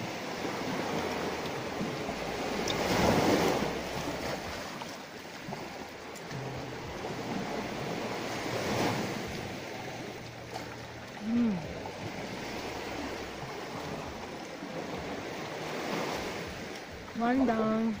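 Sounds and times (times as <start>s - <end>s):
sea waves washing ashore: 0.0s - 18.0s.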